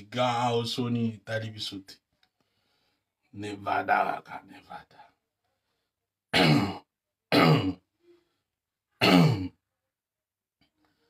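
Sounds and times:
man clearing his throat: 6.3 - 7.9, 9.0 - 9.6.

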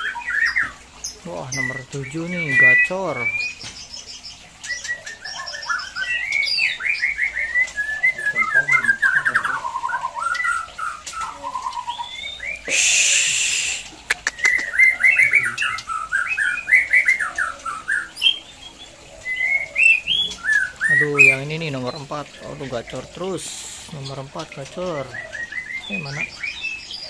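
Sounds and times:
birds singing whistles and chirps: 0.0 - 27.0
sharp clicks: 13.8 - 14.7.

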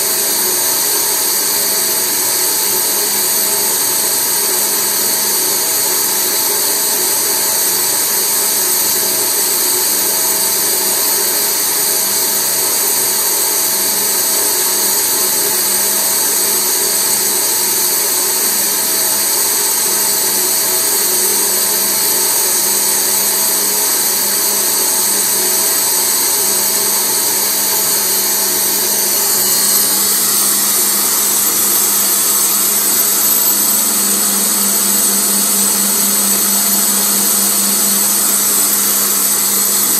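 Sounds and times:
polishing motor whining: 28.5 - 39.9.

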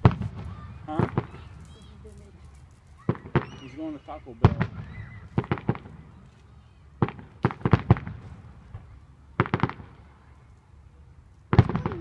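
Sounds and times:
fireworks bangs and crackling: 0.0 - 6.2, 7.0 - 10.3, 11.4 - 12.0.

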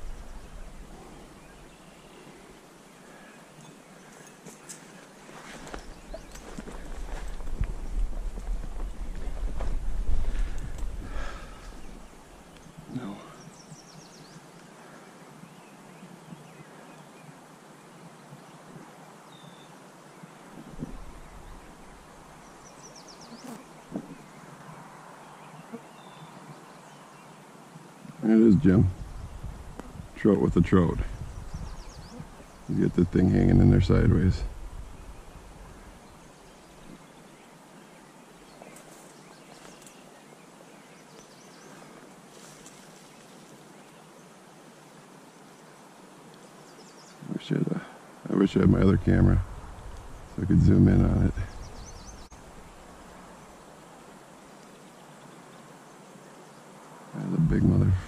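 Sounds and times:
steady outdoor hiss: 0.0 - 58.0
faint bird chirps: 18.4 - 27.4, 31.0 - 44.3.

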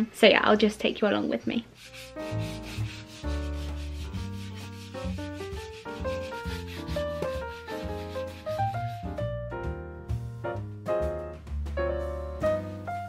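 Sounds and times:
sandpaper rubbing on wall: 1.7 - 9.2
piano music: 1.8 - 13.0.

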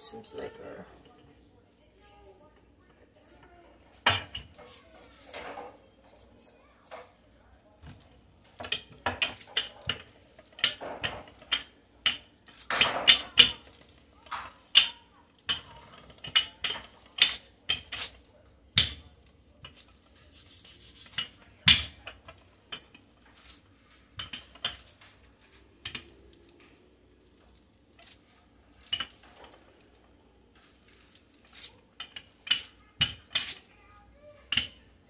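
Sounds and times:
kitchen utensils and dishes clattering: 3.9 - 6.1, 7.8 - 26.8, 27.5 - 33.8, 34.4 - 34.9.

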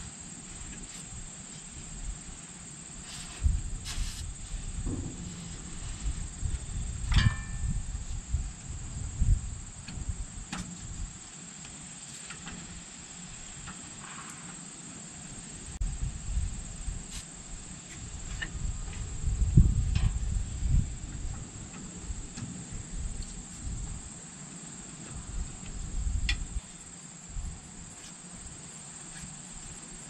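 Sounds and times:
crickets trilling: 0.0 - 30.0
low rumbles: 4.6 - 10.4
knocks: 4.9 - 6.3
metallic clink: 7.1 - 7.8.

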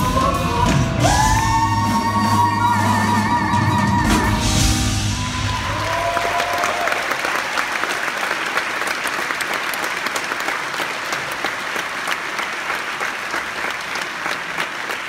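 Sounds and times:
audience applauding: 5.0 - 15.0.

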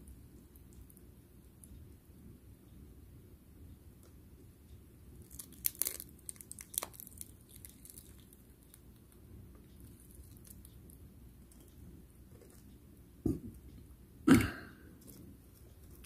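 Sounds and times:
egg shell cracking: 5.2 - 8.8.

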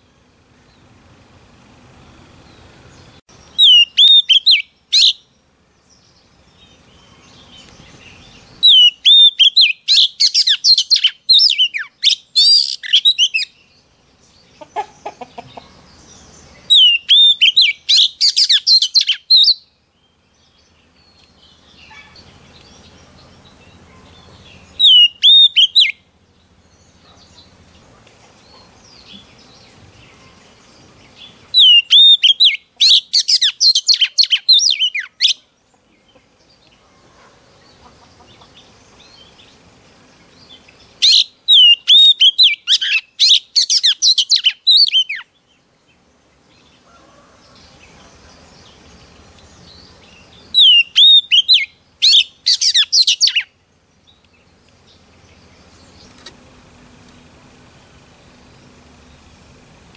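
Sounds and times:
bird singing whistled phrases: 3.5 - 5.2, 8.6 - 13.6, 16.7 - 19.6, 24.8 - 26.0, 31.6 - 35.4, 41.0 - 45.2, 50.6 - 53.5.

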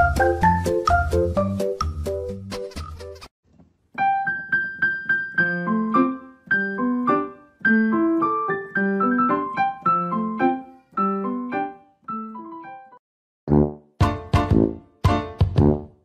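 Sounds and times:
background piano music: 0.0 - 3.2, 3.9 - 13.0, 13.6 - 16.0.

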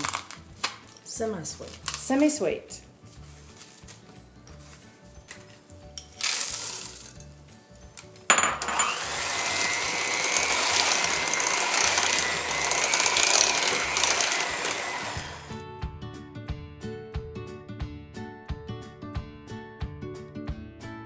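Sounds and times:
background music: 0.0 - 21.0
mixer beaters rattling in bowl: 6.2 - 7.2, 8.6 - 15.3
electric hand mixer whining: 8.6 - 15.6.

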